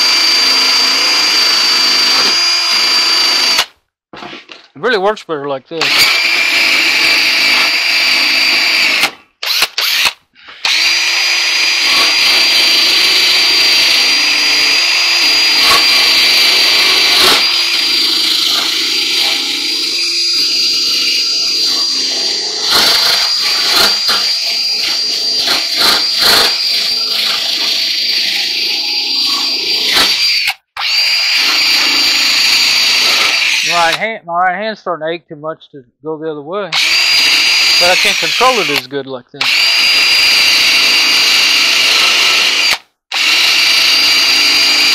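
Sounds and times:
drill motor whining: 0:00.0 - 0:03.7, 0:05.8 - 0:34.0, 0:36.7 - 0:44.9.

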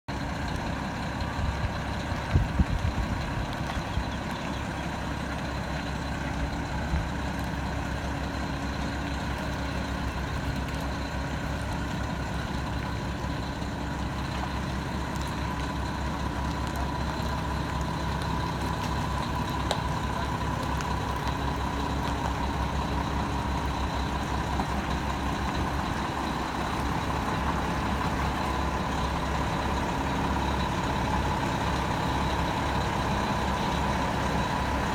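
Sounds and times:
diesel truck engine under load: 0:00.1 - 0:34.9.

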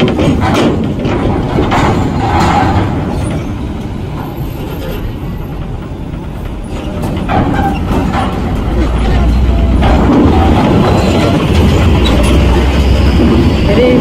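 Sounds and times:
steady low rumble: 0:00.0 - 0:14.0
truck diesel engine running: 0:03.9 - 0:14.0.

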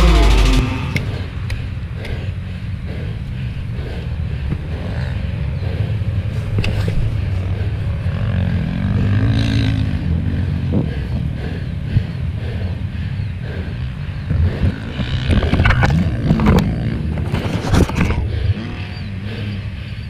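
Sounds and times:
motocross bike engine revving: 0:00.0 - 0:02.8, 0:04.0 - 0:20.0.

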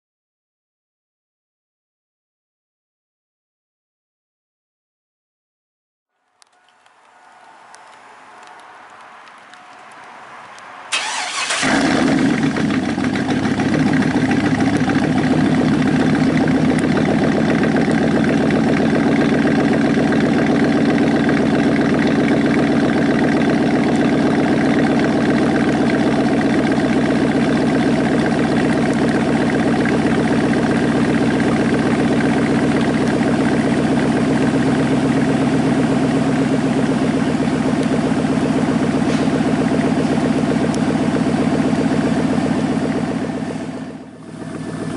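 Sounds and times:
starter motor cranking: 0:10.9 - 0:19.1
loud engine idling: 0:10.9 - 0:44.9.

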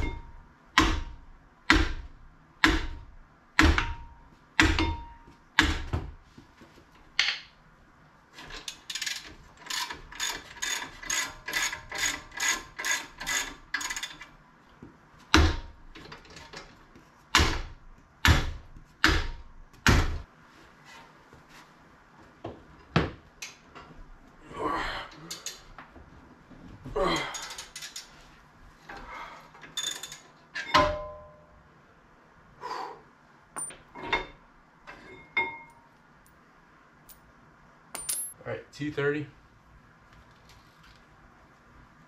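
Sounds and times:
hammer striking metal rotor: 0:03.6 - 0:05.8.

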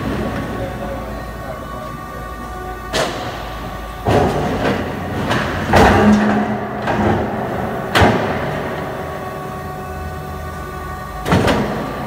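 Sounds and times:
steel beam rumbling over rollers: 0:00.0 - 0:12.0
heavy metal clunks: 0:02.9 - 0:08.8.

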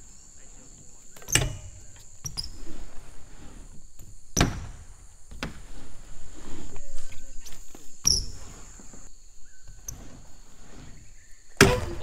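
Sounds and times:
high drone of insects: 0:00.0 - 0:12.0
bike wheels knocking on ramp: 0:04.0 - 0:05.8, 0:11.6 - 0:12.0.

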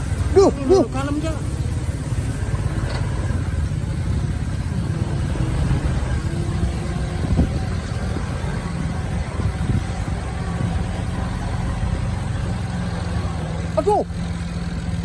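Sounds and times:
truck engine running: 0:00.0 - 0:15.0.

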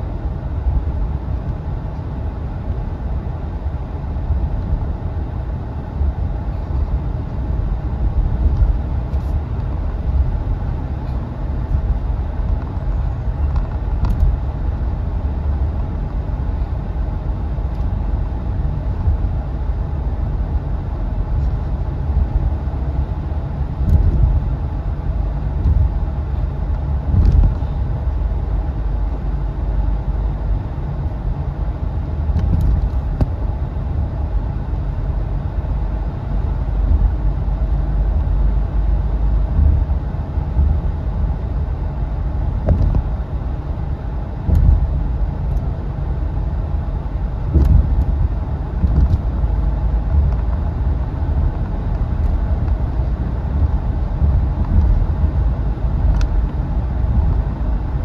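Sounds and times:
car engine and tyre rumble: 0:00.0 - 0:58.0
car bumps: 0:42.6 - 0:43.1, 0:47.5 - 0:48.2.

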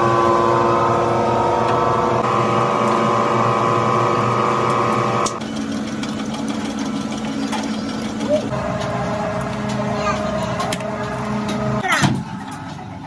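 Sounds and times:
machinery droning hum: 0:00.0 - 0:05.6, 0:07.0 - 0:13.0
rough machine noise: 0:00.0 - 0:13.0.

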